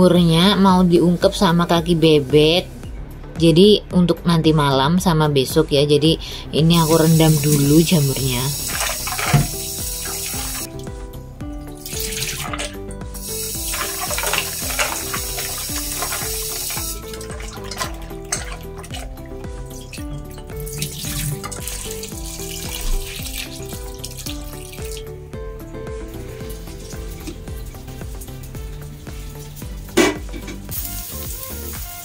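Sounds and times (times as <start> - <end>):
background music: 0.0 - 32.0
tap water splashing into bowl: 8.7 - 10.7, 11.7 - 12.8, 13.6 - 19.1.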